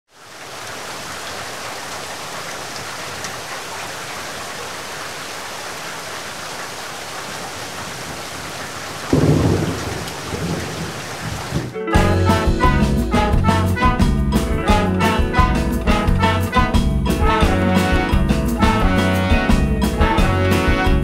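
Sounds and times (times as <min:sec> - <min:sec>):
heavy rain: 0:00.1 - 0:21.0
deep rumble of thunder: 0:09.1 - 0:11.7.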